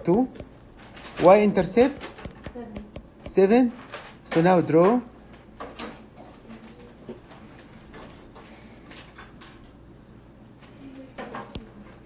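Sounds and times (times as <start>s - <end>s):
faint clicks and rustles: 0.4s - 4.4s, 5.3s - 9.8s.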